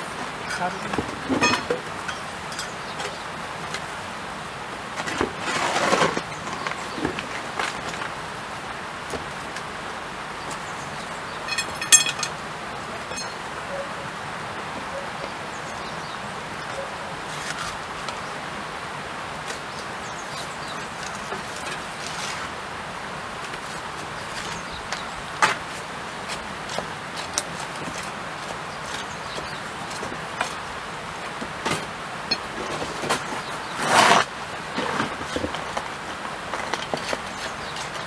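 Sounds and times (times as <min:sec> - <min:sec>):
stones clinking and knocking: 0:11.5 - 0:12.4.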